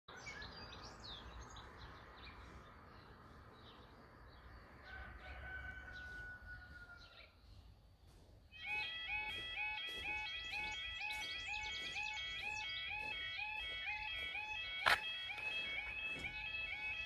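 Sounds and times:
birds chirping: 0.1s - 17.0s
long steady call: 8.5s - 17.0s.

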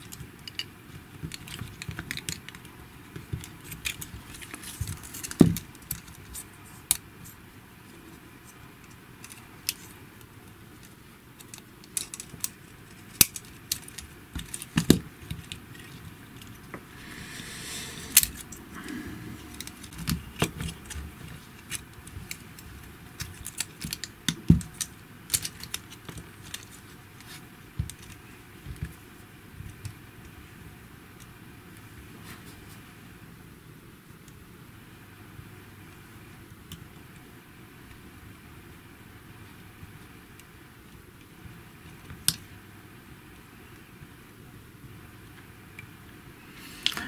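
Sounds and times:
plastic parts clicking and knocking: 10.8s - 16.6s, 19.6s - 29.0s
short rustling hiss: 16.8s - 19.9s.

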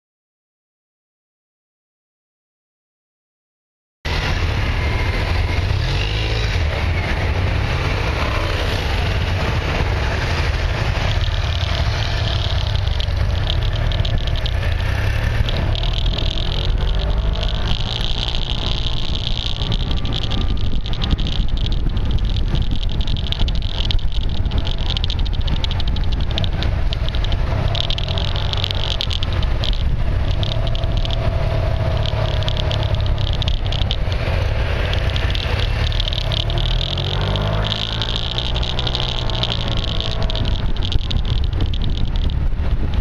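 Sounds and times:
wind rumbling on microphone: 4.1s - 43.0s
fast clicking of tape: 10.8s - 43.0s.

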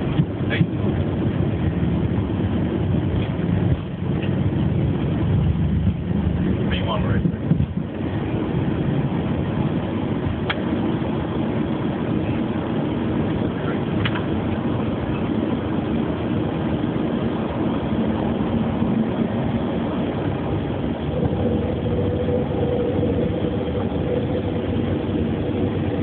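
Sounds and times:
jet engines running: 0.0s - 26.0s
rushing air: 0.0s - 26.0s
faint steady hum: 17.8s - 26.0s.

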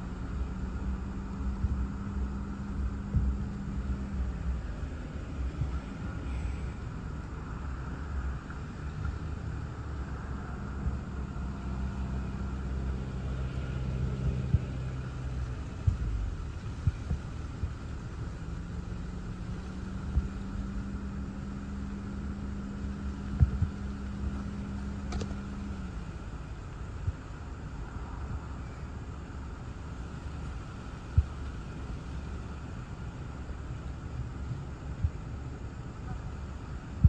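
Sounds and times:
low hum: 0.0s - 37.0s
low wind rumble: 0.0s - 37.0s.

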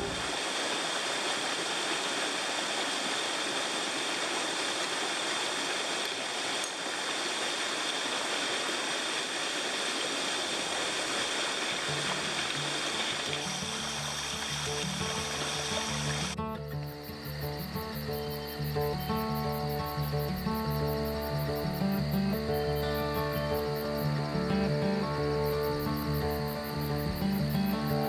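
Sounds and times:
stream rushing over rocks: 0.0s - 16.4s.

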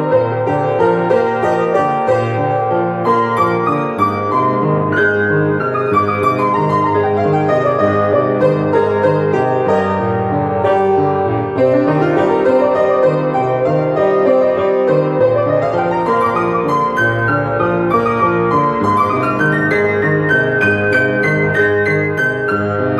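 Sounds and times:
keyboard instrument playing: 14.8s - 22.9s.

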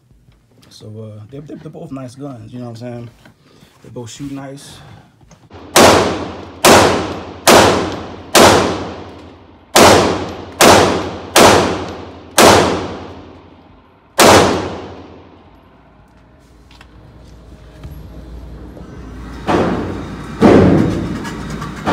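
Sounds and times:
pistol shots echoing indoors: 5.5s - 15.5s.

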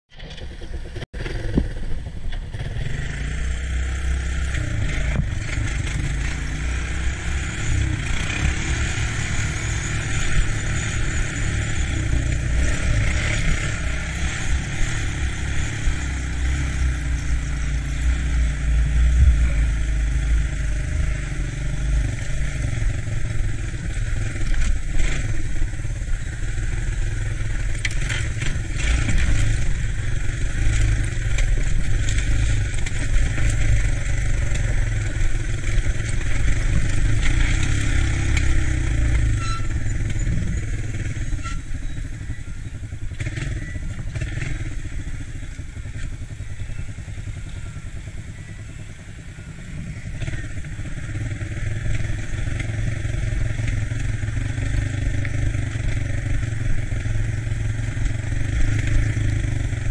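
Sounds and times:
three-wheeler engine running: 0.1s - 59.9s.

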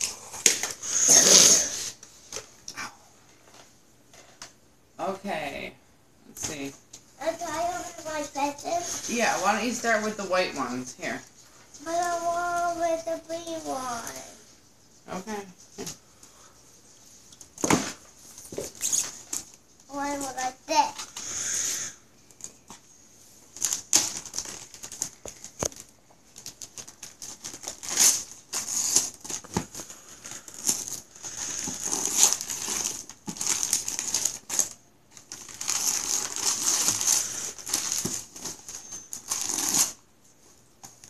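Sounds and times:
wrapping paper tearing and crinkling: 0.0s - 2.0s, 11.8s - 14.4s, 23.4s - 40.0s.

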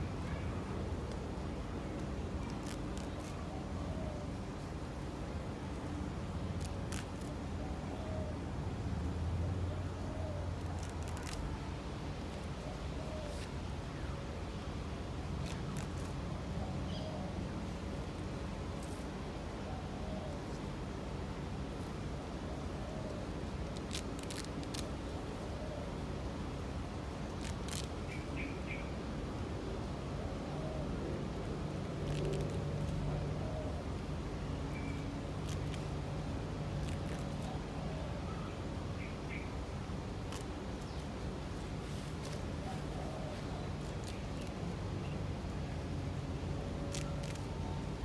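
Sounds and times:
leaves rustling: 0.0s - 48.0s
low background noise: 0.0s - 48.0s
bird chirps: 28.0s - 29.0s, 34.7s - 35.1s, 38.2s - 39.5s.

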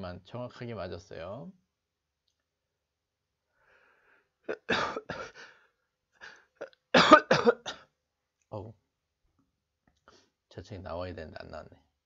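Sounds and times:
man coughing: 4.5s - 5.5s, 6.6s - 7.9s.

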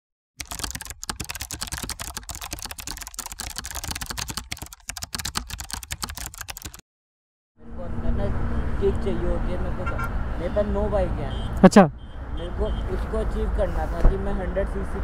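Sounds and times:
keyboard key clicks: 0.4s - 6.8s.

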